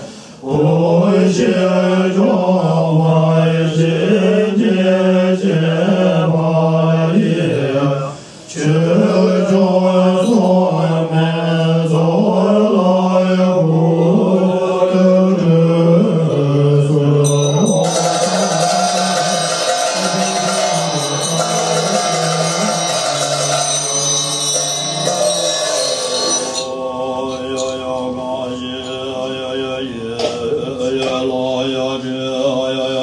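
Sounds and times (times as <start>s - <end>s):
monks chanting in unison: 0.0s - 33.0s
instrumental music: 17.3s - 26.7s.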